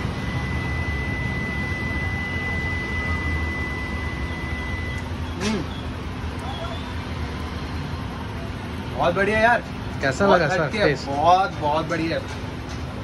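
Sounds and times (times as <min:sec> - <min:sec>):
high-pitched tone: 0:00.0 - 0:05.1
low rumble of street traffic: 0:00.0 - 0:13.0.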